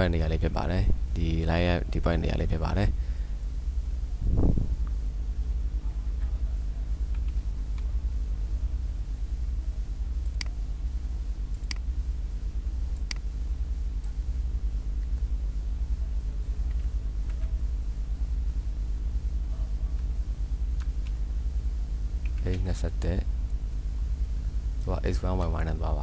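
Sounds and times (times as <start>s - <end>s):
low electrical hum: 0.0s - 26.0s
computer mouse clicks: 7.1s - 7.9s, 10.2s - 10.6s, 11.5s - 11.9s, 13.0s - 13.3s.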